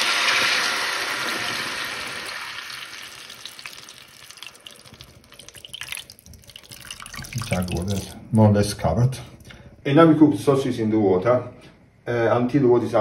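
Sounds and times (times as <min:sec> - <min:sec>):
hot fat sizzling: 0:00.0 - 0:06.7
water trickling from jug: 0:02.6 - 0:08.3.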